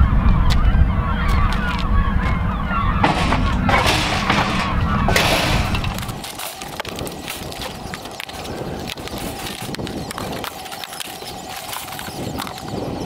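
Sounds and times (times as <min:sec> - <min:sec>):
birds honking: 0:00.0 - 0:13.0
low rumble: 0:01.8 - 0:06.3
noisy bursts: 0:02.4 - 0:12.5.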